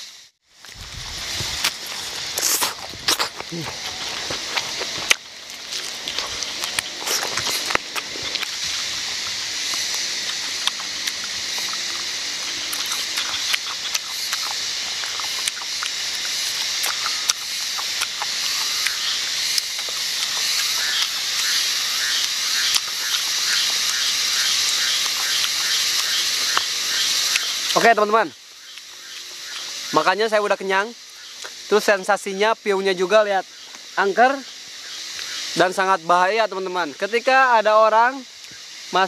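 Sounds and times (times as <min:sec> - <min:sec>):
frogs and insects chorus: 0:00.0 - 0:39.0
wet chewing and tearing: 0:00.6 - 0:27.9.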